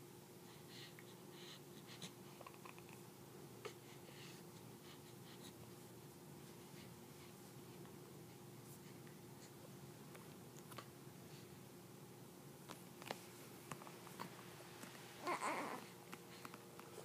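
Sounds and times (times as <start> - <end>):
faint steady hum: 0.0 - 17.0
soft rustles and clicks: 12.6 - 15.2.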